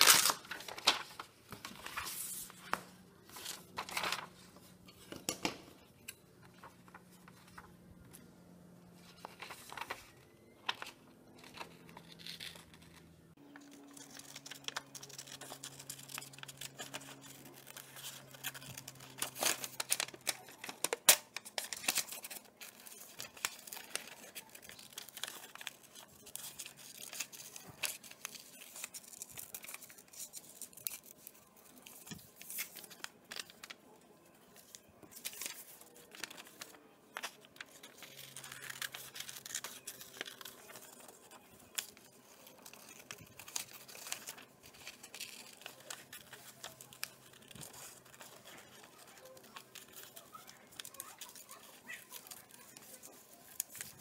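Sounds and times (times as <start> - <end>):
paper rustling: 0.0 - 8.3, 8.9 - 54.0
scissors snipping paper: 11.4 - 33.7, 34.6 - 54.0.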